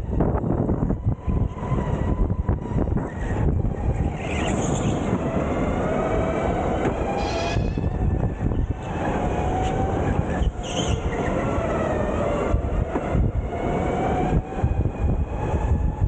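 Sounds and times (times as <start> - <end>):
brief high squeal: 7.2 - 7.9.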